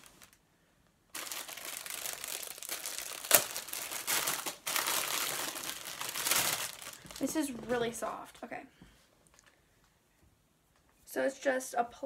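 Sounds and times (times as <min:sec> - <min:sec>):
plastic packaging crinkling: 0:00.0 - 0:00.4, 0:01.1 - 0:08.4.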